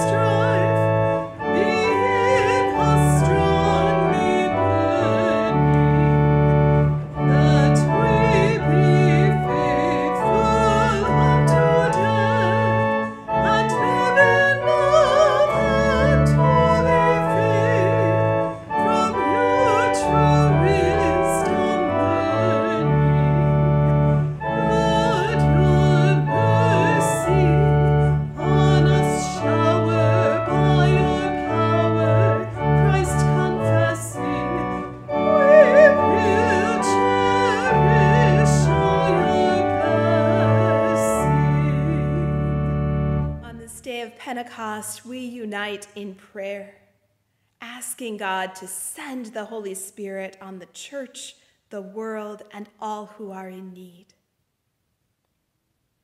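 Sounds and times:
person singing with vibrato: 0.0 - 6.3, 7.2 - 23.7, 24.5 - 42.4
organ chords: 0.0 - 43.4.

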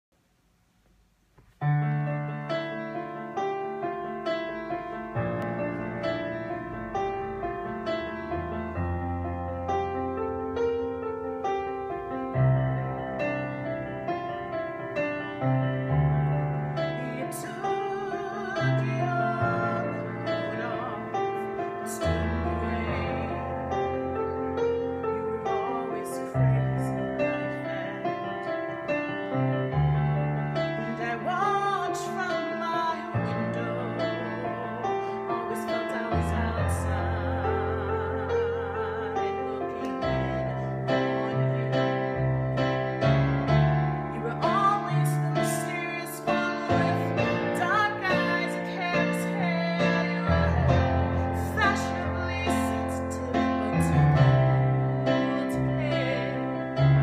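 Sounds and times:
piano ballad chords: 1.2 - 57.0
woman singing softly: 16.7 - 29.2, 30.5 - 43.0, 44.1 - 57.0.

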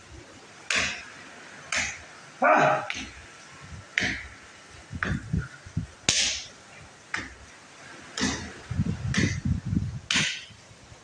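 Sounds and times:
hand slaps against a pillar: 2.9 - 3.2, 6.1 - 6.5, 9.1 - 9.4, 10.1 - 10.5.

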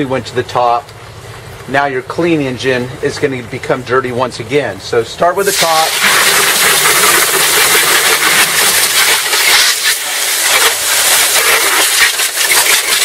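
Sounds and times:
hose water spraying on metal: 5.3 - 13.0.

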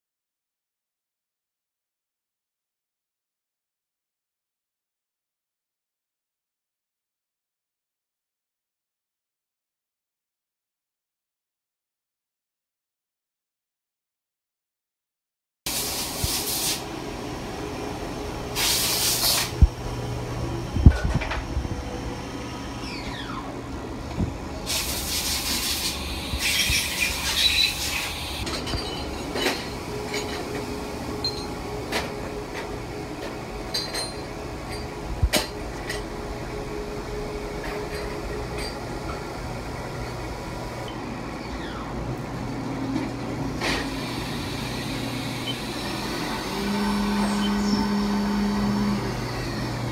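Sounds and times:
short bursts of hiss: 15.7 - 16.9, 18.6 - 19.6, 24.7 - 28.4
machining center humming: 15.8 - 49.9.

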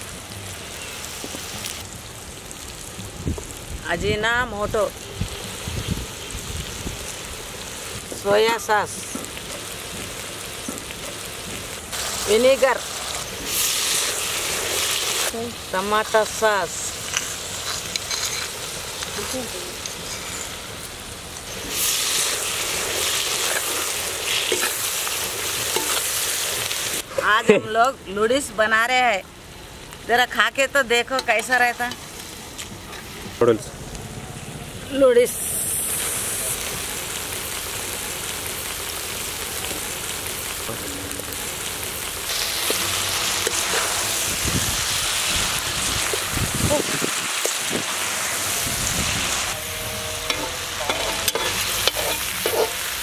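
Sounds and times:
vegetables sizzling in a pan: 0.0 - 53.0
metal spatula scraping a wok: 17.1 - 18.7, 21.6 - 26.4, 42.3 - 44.4, 49.5 - 53.0
metal ladle stirring: 50.3 - 52.9.

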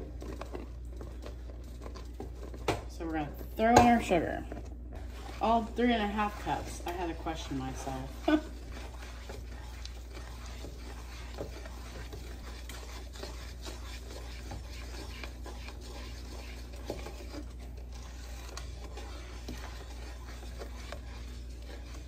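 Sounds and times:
steady low hum: 0.0 - 22.0
spoon scraping a pot: 5.0 - 22.0.

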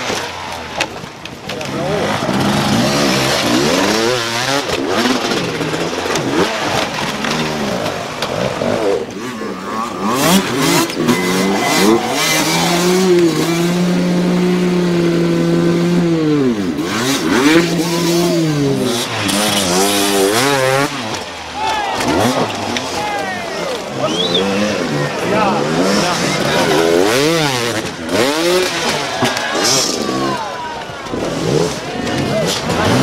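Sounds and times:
dirt bike engines revving: 0.0 - 33.0.

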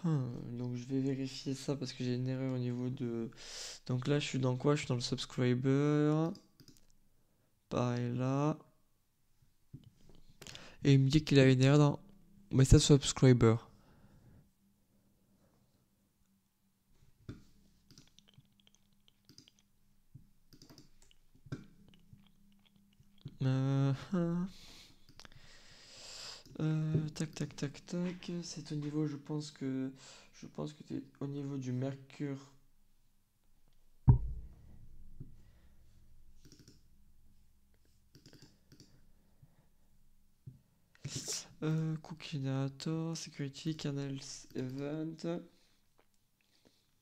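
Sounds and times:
keyboard and mouse clicking: 6.3 - 6.9, 17.3 - 19.7, 20.5 - 22.0, 36.4 - 36.8, 38.1 - 39.0
knock: 34.1 - 34.6.

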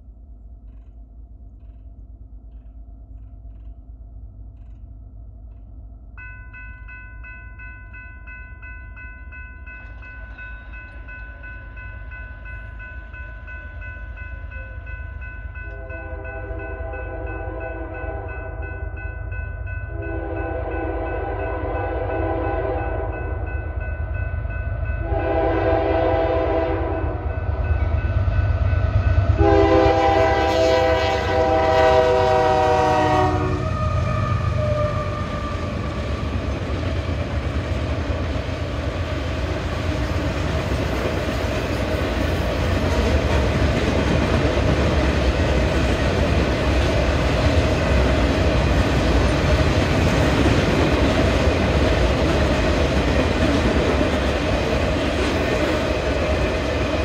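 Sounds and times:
train rumble: 0.0 - 57.0
crossing warning bells ringing: 6.1 - 57.0
train air horn: 15.8 - 18.4, 19.9 - 23.3, 25.0 - 27.3, 29.4 - 35.7.

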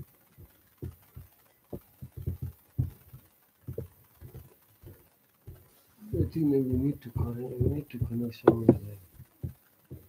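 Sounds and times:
fingers tapping laptop keys: 0.0 - 10.0.

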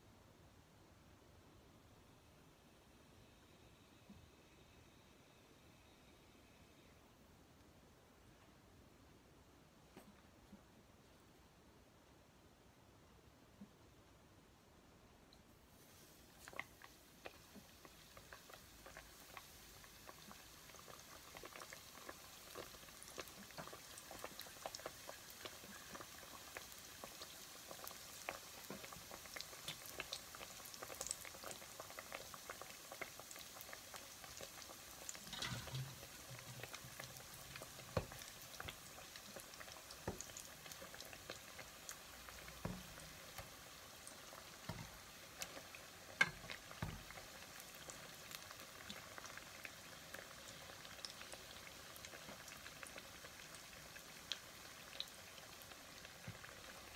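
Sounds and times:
dough sizzling in hot oil: 15.7 - 56.9
spatula tapping a pan: 38.0 - 38.8, 46.2 - 47.1.

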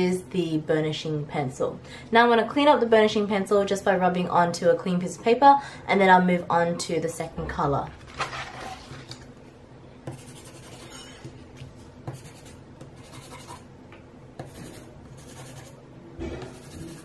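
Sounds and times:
pencil scratching on paper: 10.1 - 11.0, 12.1 - 13.7, 14.4 - 15.8, 16.5 - 17.0.

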